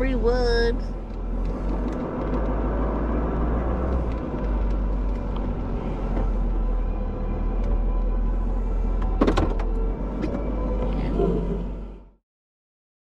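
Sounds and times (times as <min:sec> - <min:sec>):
road vehicle driving: 0:00.0 - 0:12.2.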